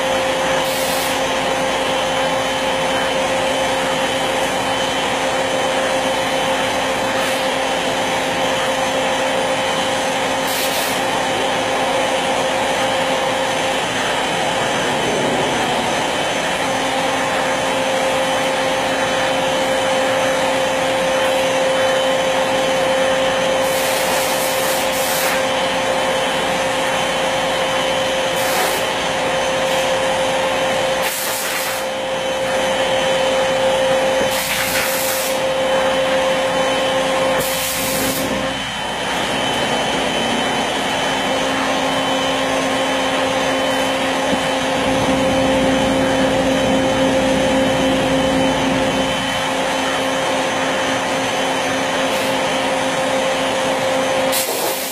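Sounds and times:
wood router whining: 0.0 - 54.9.

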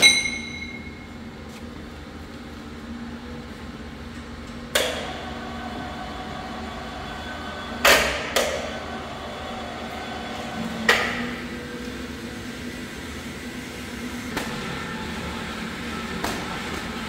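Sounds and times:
sharp metallic clanks: 0.0 - 1.0
workshop hum: 0.0 - 17.0.

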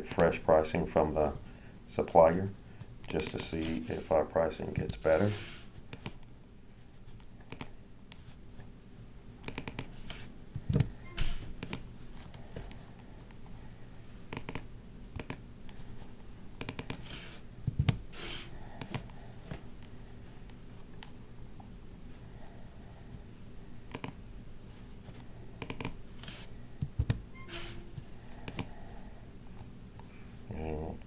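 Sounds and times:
keyboard taps and mouse clicks: 14.3 - 14.6.

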